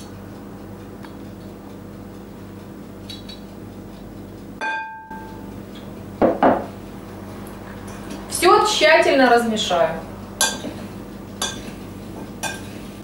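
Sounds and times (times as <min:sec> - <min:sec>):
low room hum: 0:00.0 - 0:13.0
knock: 0:06.2 - 0:06.7.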